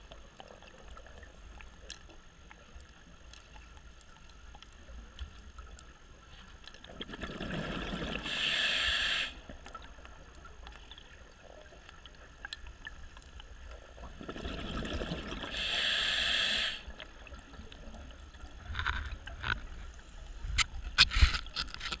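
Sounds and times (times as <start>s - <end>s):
bubbles rushing: 6.9s - 8.3s, 14.0s - 15.5s
regulator breath hiss: 8.2s - 9.5s, 15.5s - 16.9s.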